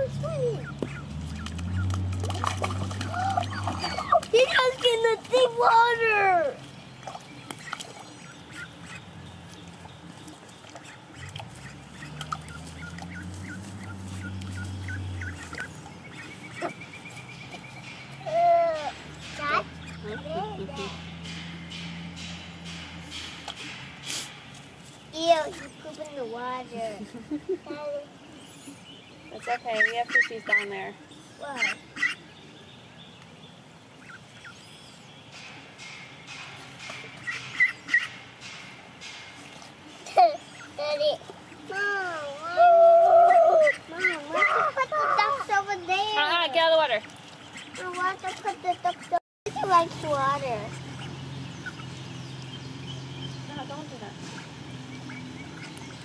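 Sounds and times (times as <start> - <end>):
ducklings peeping: 0.0 - 56.0
faint stream flowing: 0.0 - 56.0
ducks quacking softly: 7.5 - 17.6, 28.6 - 32.3, 42.6 - 52.0.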